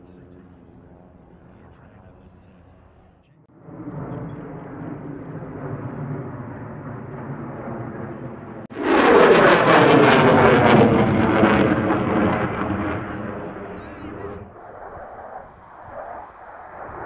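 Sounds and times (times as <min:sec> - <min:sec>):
jet engines passing overhead: 0:00.0 - 0:17.0
loud crackling jet noise: 0:03.5 - 0:17.0.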